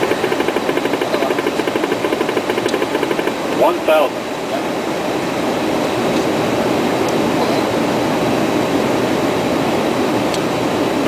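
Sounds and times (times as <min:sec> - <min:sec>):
jet cockpit airflow and engine: 0:00.0 - 0:11.0.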